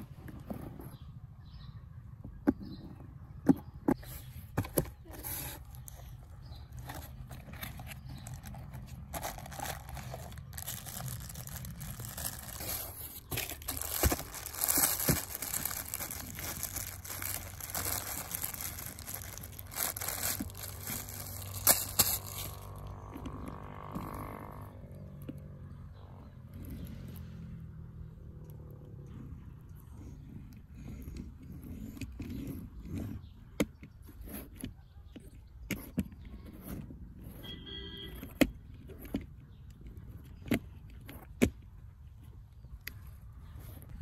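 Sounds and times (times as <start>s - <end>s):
plastic bag crinkling: 6.7s - 22.8s.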